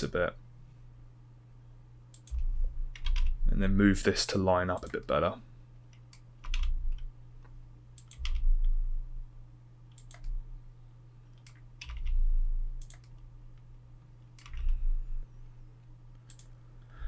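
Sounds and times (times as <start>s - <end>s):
steady low hum: 0.0s - 17.0s
keyboard keys clicking: 2.2s - 3.3s, 5.9s - 7.1s, 8.0s - 8.5s, 9.9s - 10.4s, 11.3s - 12.2s, 12.8s - 13.7s, 14.4s - 14.8s, 16.2s - 16.6s.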